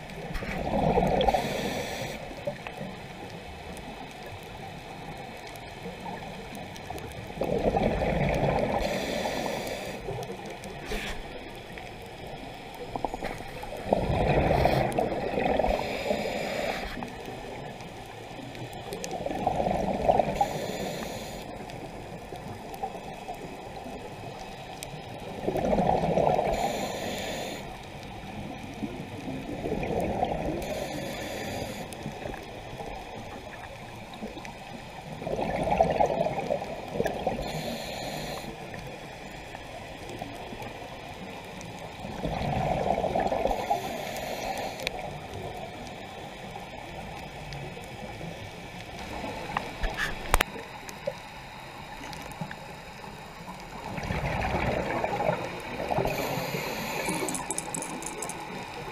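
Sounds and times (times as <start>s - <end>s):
diver exhaling bubbles: 0.4s - 1.8s, 7.4s - 9.0s, 13.0s - 17.0s, 19.1s - 20.5s, 25.4s - 26.8s, 29.5s - 30.7s, 35.2s - 37.7s, 42.1s - 44.0s, 53.9s - 58.9s
regulator hiss: 1.2s - 2.6s, 8.7s - 12.8s, 15.6s - 17.2s, 20.3s - 22.0s, 26.4s - 27.9s, 30.6s - 32.3s, 37.3s - 39.3s, 43.4s - 45.0s, 55.0s - 58.9s.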